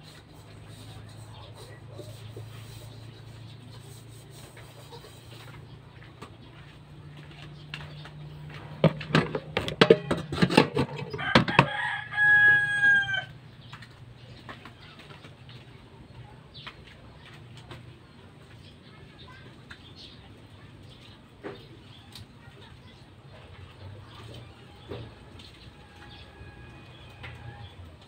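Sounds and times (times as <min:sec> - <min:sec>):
rooster crowing: 0:11.0 - 0:13.4, 0:25.7 - 0:27.8.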